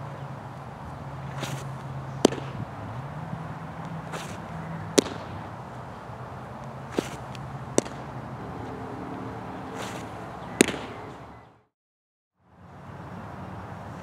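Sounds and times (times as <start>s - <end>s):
outdoor background noise: 0.0s - 11.7s, 12.4s - 14.0s
baseball smacking into mitt: 1.3s - 2.6s, 4.1s - 5.4s, 6.9s - 8.1s, 9.8s - 11.0s.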